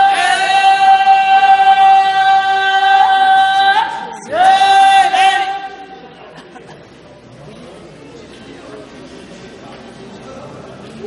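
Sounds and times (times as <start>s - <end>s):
voices singing held chant note: 0.0s - 6.1s.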